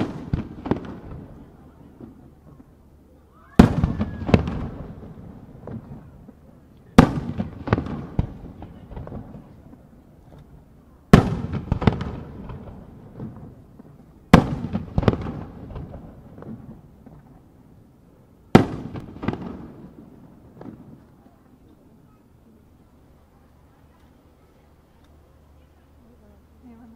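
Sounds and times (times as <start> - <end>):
firework booms: 0.0 - 2.8, 3.5 - 17.8, 18.4 - 21.6
small firework pops: 0.0 - 2.8, 3.6 - 17.5, 18.5 - 21.9.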